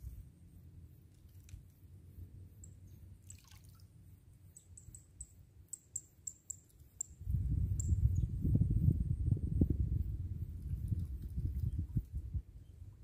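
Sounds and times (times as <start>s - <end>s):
lake water lapping: 3.2s - 3.9s
faint high ticks: 4.5s - 8.0s
wind rumble on microphone: 7.1s - 13.0s.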